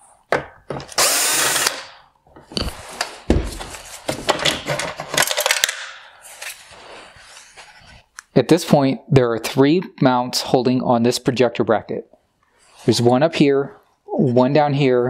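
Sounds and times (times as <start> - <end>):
cordless power driver whirring: 0.9 - 1.8.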